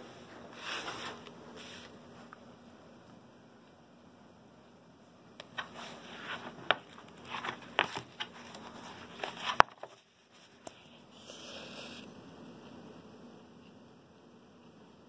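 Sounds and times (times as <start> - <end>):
soft paper rustle: 0.3 - 2.3, 5.5 - 12.0
book pages flipping: 5.4 - 12.1.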